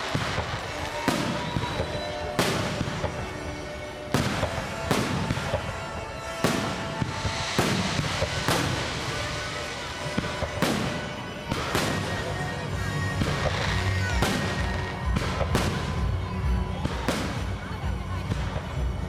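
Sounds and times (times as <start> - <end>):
fireworks bursting with bangs: 0.0 - 19.0
music playing: 0.0 - 19.0.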